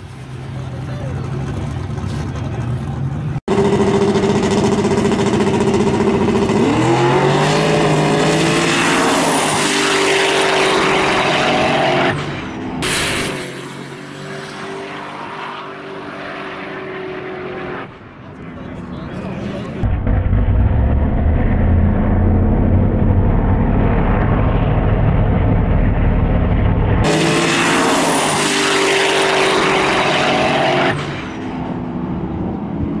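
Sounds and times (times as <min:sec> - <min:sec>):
truck engine launching hard: 0:03.5 - 0:14.1, 0:19.6 - 0:31.8.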